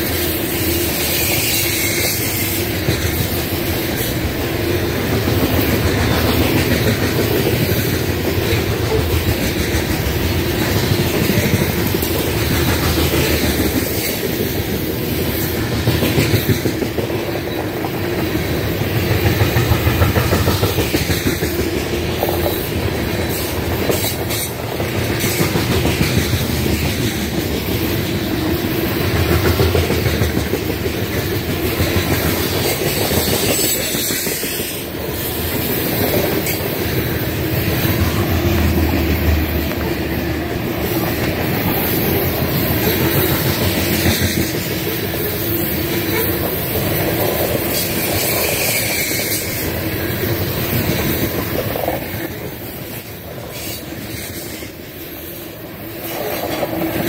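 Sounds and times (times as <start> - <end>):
steel wheels rumbling on rails: 0.0 - 57.0.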